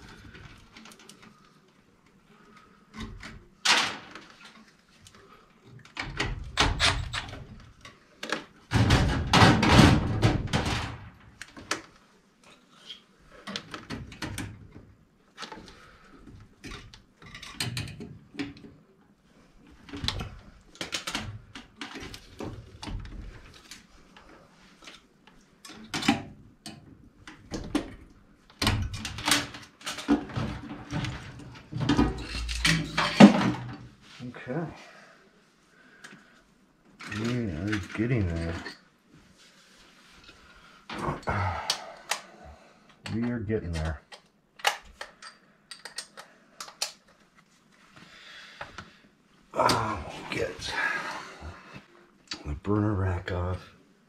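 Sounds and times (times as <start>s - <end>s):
knocks and rattles in metal cabinet: 8.7s - 11.2s.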